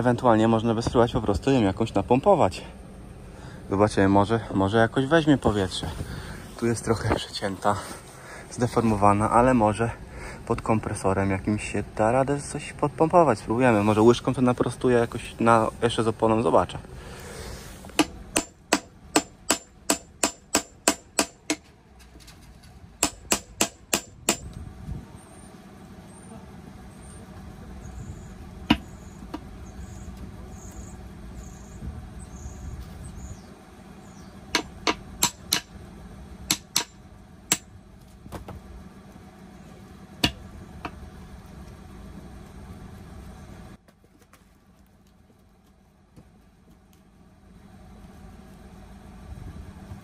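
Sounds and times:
hammer striking steel wheel: 0:18.0 - 0:21.7, 0:23.0 - 0:24.5, 0:28.7 - 0:29.4, 0:34.5 - 0:35.8, 0:36.4 - 0:37.7, 0:40.2 - 0:41.0.

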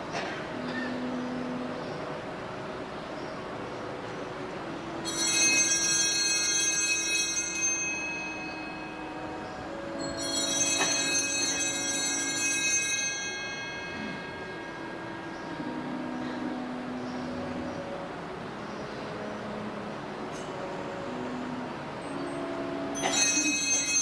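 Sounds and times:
small altar bells jangling: 0:05.0 - 0:16.9, 0:22.8 - 0:24.0.

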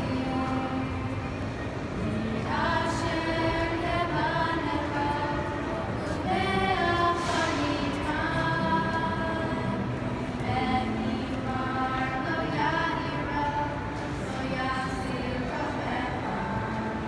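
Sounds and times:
choir singing: 0:02.4 - 0:17.0.

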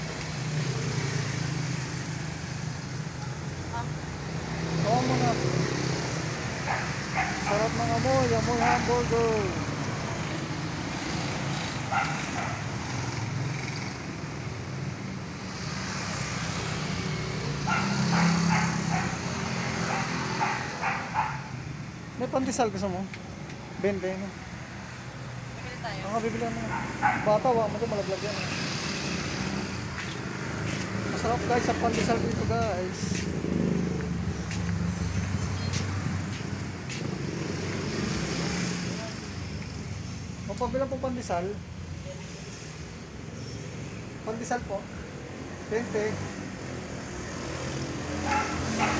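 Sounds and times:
low hum of traffic: 0:00.0 - 0:48.9
dog barking: 0:06.6 - 0:07.6, 0:08.6 - 0:09.0, 0:11.9 - 0:12.7, 0:17.6 - 0:21.6, 0:26.6 - 0:27.4, 0:48.2 - 0:48.9.

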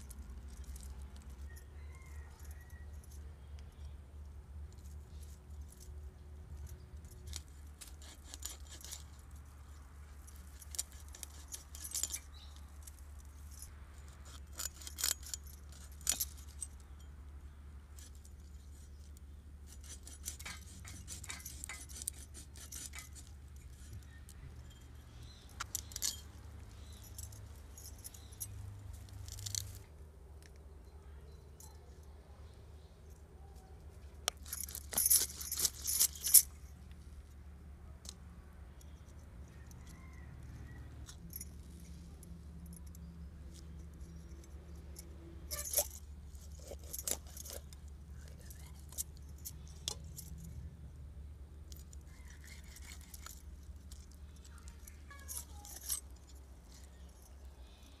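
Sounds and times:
faint low hum: 0:00.0 - 0:58.0
knife scraping fish scales: 0:07.8 - 0:09.2, 0:10.6 - 0:12.3, 0:19.7 - 0:24.0, 0:45.5 - 0:47.7, 0:52.2 - 0:53.5.

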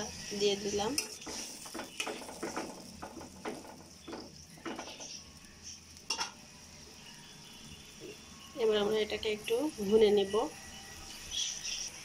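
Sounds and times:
spatula scraping a metal pan: 0:00.0 - 0:05.2.

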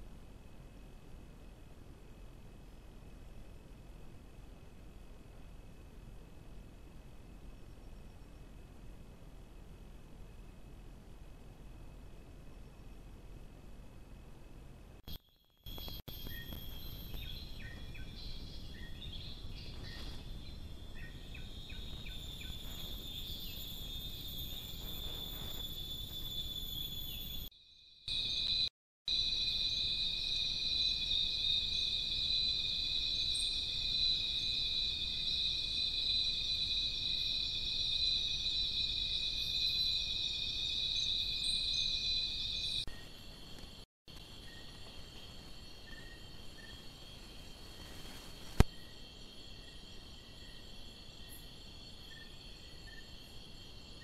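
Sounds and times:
faint insect chirps: 0:00.0 - 0:54.0
crickets trilling: 0:15.0 - 0:54.0.

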